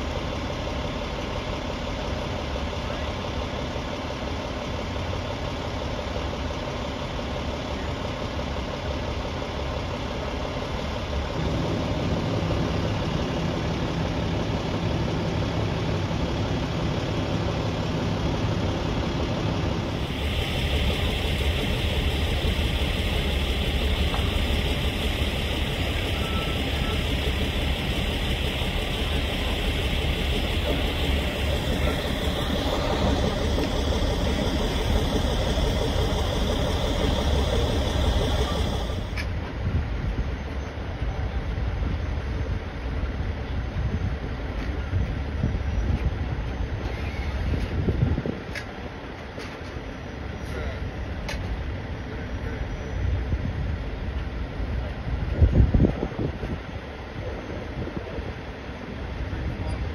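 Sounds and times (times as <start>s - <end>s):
heavy engine idling: 0.0s - 43.4s
deep hum: 19.7s - 39.2s
steady hiss: 19.9s - 39.2s.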